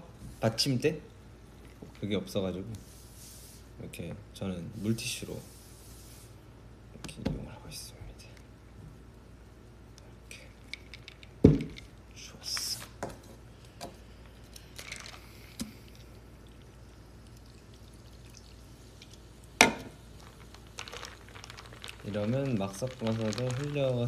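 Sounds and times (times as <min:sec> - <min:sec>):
drink poured over ice: 0:14.4 - 0:19.3, 0:20.0 - 0:24.0
glass mug set down: 0:19.6 - 0:20.0.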